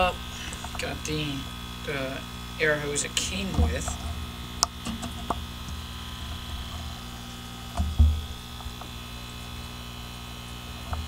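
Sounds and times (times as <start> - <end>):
aquarium air pump humming: 0.0 - 11.0.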